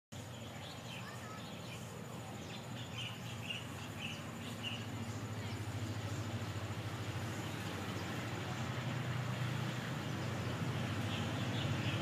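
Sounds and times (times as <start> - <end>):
small birds chirping: 0.1 - 12.0
diesel locomotive rumble: 0.2 - 12.0.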